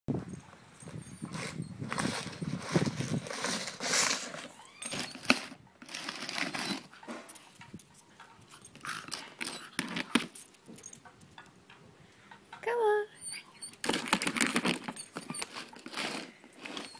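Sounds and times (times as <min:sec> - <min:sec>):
plastic tub scraping on concrete: 0:01.2 - 0:07.3, 0:13.8 - 0:16.9.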